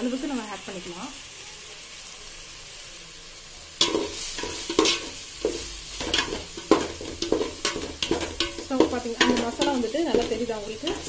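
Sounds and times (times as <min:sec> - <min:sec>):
food sizzling: 0:00.0 - 0:11.0
spoon scraping metal pot: 0:03.8 - 0:11.0.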